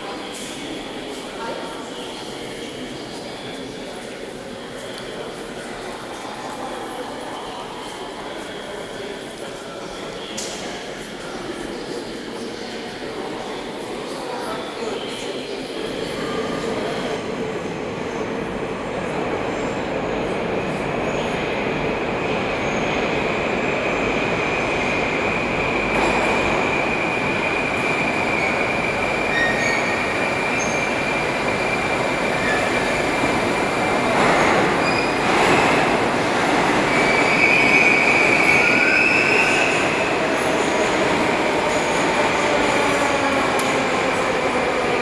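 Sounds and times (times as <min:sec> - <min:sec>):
metro train rumbling: 0:00.0 - 0:45.0
train brakes squealing: 0:28.0 - 0:33.0, 0:34.5 - 0:35.7, 0:36.8 - 0:39.9.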